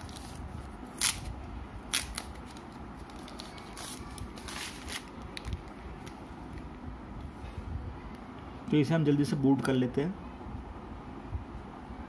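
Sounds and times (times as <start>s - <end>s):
plastic sleeve rustling: 1.9s - 6.2s.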